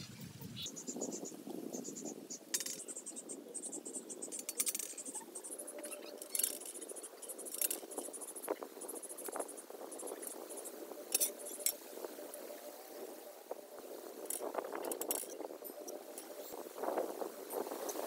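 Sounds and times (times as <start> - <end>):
light clicks and scrapes: 4.3 - 12.5, 14.1 - 18.0.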